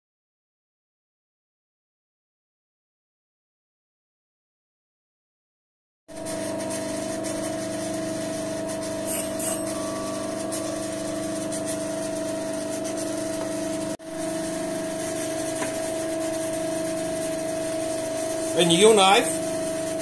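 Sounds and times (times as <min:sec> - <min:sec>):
bench grinder running: 0:06.2 - 0:20.0.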